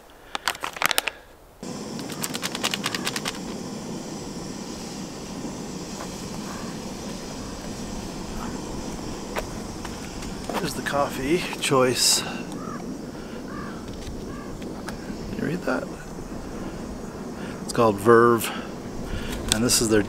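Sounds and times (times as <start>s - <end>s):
foil pouch crinkling: 0.2s - 1.3s, 1.9s - 3.6s
steady rushing noise: 1.6s - 20.0s.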